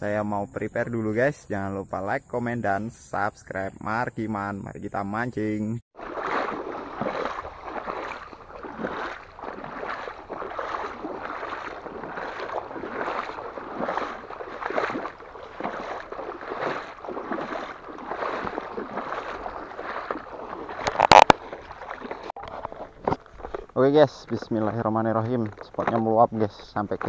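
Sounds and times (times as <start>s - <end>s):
footsteps sloshing through water: 6.0s - 27.0s.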